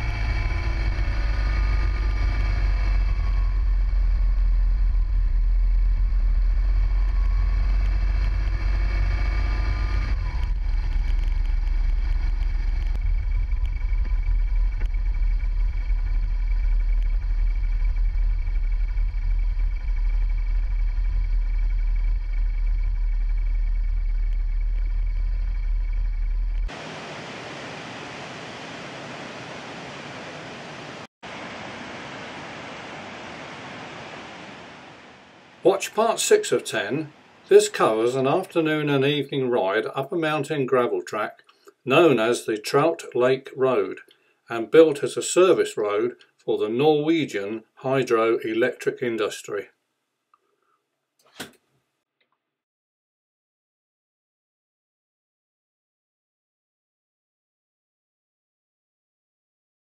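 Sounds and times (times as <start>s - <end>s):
motorcycle engine running: 0.0s - 26.7s
heavy low rumble: 0.0s - 27.3s
waterfall rushing: 26.7s - 36.2s.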